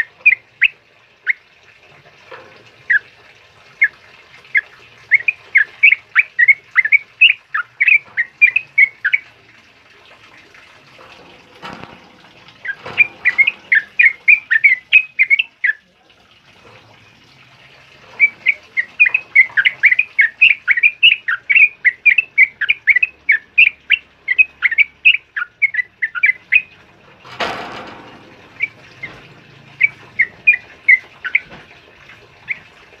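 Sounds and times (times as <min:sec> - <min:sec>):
bird chattering song: 0:00.0 - 0:01.4, 0:04.5 - 0:09.2, 0:12.6 - 0:15.8, 0:18.2 - 0:26.7, 0:29.8 - 0:31.5.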